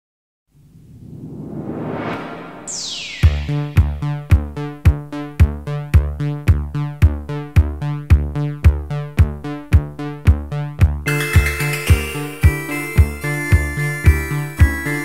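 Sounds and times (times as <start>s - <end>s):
synth bass line: 1.6s - 6.9s
bright synth layer: 1.7s - 4.3s, 11.1s - 15.0s
drum machine kick: 3.1s - 9.4s, 10.3s - 14.8s.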